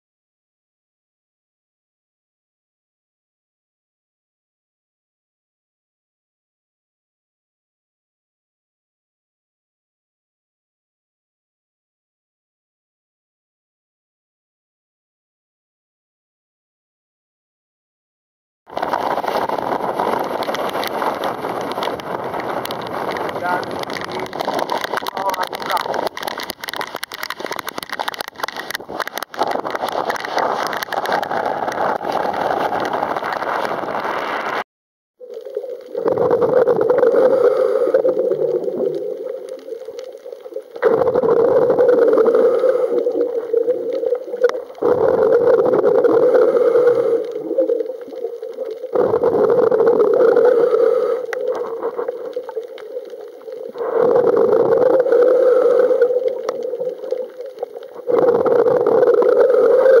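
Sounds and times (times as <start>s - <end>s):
exhaled bubbles: 18.7s - 34.6s, 35.2s - 60.0s
heavy rain on sea: 18.7s - 34.6s, 35.3s - 60.0s
diver breathing through regulator: 36.0s - 38.9s, 40.8s - 44.2s, 44.8s - 48.0s, 48.9s - 52.6s, 53.7s - 57.0s, 58.0s - 60.0s.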